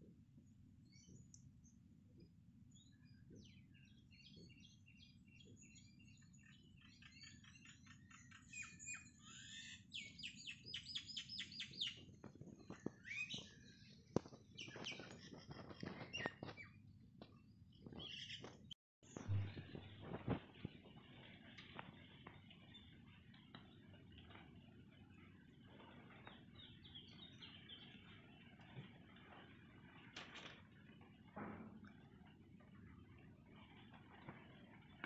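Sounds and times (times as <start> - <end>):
small birds chirping: 0.4 - 35.0.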